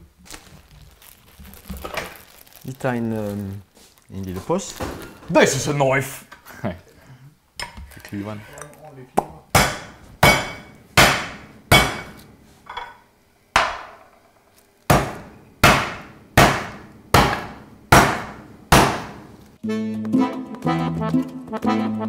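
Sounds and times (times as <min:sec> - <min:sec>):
cleaver pounding meat: 0:09.2 - 0:12.2, 0:14.9 - 0:19.2
music: 0:19.6 - 0:22.0.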